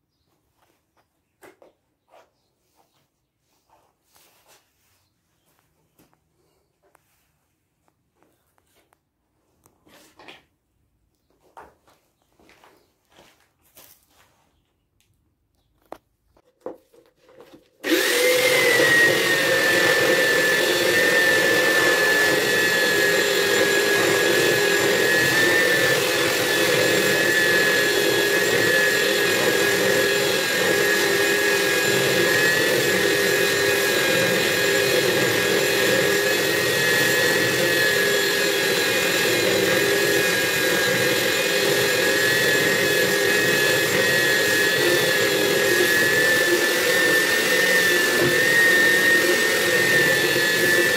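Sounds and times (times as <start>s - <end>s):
belt sander motor whine: 17.8s - 50.9s.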